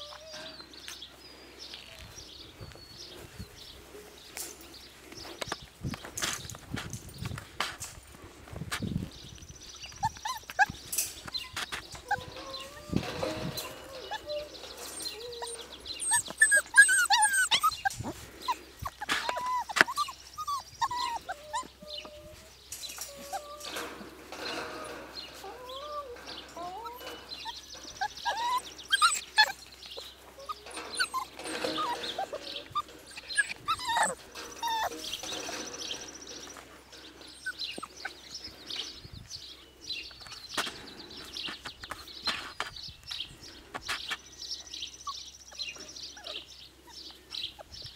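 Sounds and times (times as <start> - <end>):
puppies yipping and whimpering: 0.0 - 0.8, 9.8 - 38.9, 44.9 - 47.9.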